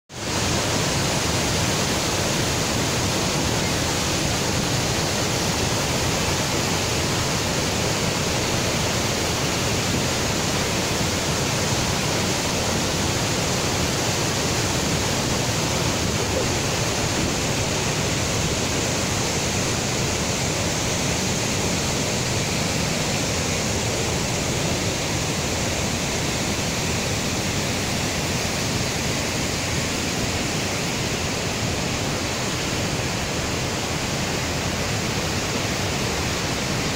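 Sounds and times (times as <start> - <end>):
waterfall rushing over rock: 0.1 - 36.9.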